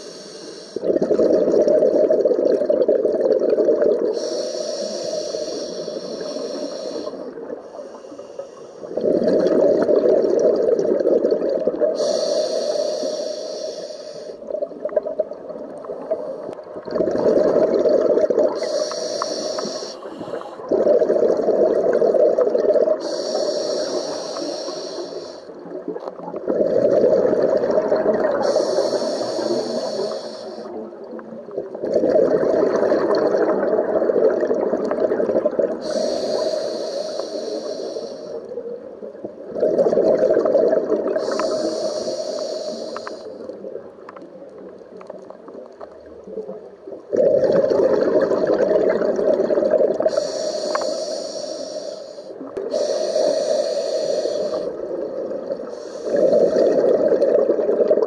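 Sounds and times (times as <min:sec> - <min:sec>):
scuba regulator breathing hiss: 0:00.0 - 0:00.9, 0:04.1 - 0:09.0, 0:11.9 - 0:14.5, 0:18.5 - 0:20.7, 0:23.0 - 0:25.6, 0:28.3 - 0:30.8, 0:35.8 - 0:38.6, 0:41.1 - 0:43.6, 0:50.0 - 0:54.9, 0:55.6 - 0:57.3
gurgling exhaust bubbles: 0:16.8 - 0:18.6, 0:20.7 - 0:23.0, 0:25.8 - 0:28.4, 0:47.1 - 0:50.2.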